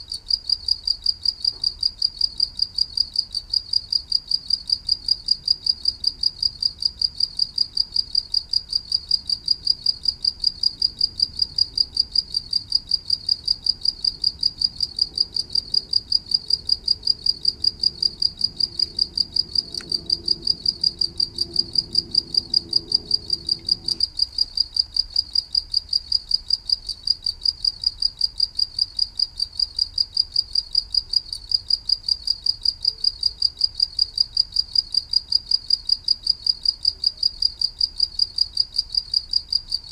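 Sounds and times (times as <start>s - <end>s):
cricket chirping: 0.0s - 39.9s
faint low rumble: 9.3s - 25.3s.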